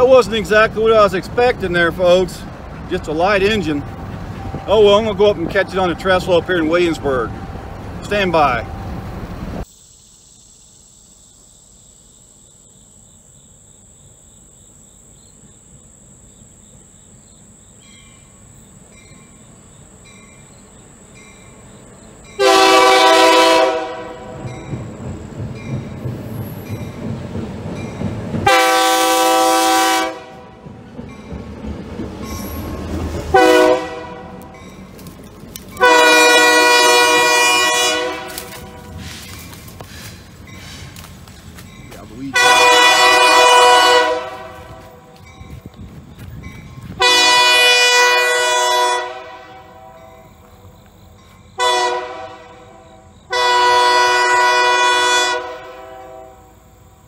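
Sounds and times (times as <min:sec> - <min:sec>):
locomotive horn blasts: 0:22.4 - 0:24.5, 0:28.4 - 0:30.6, 0:33.3 - 0:34.7, 0:35.8 - 0:39.4, 0:42.3 - 0:45.3, 0:47.0 - 0:50.4, 0:51.6 - 0:56.7.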